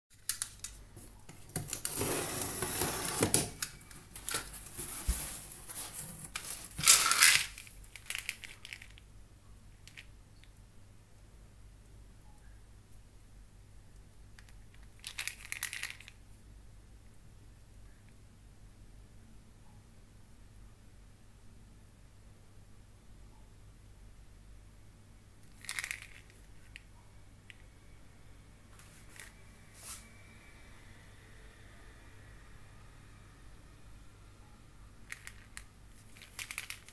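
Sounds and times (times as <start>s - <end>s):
low steady hum: 0.1s - 36.9s
bubble wrap crinkling: 0.2s - 9.0s, 25.5s - 26.8s, 35.1s - 36.9s
plastic bottle rustling: 1.4s - 9.0s.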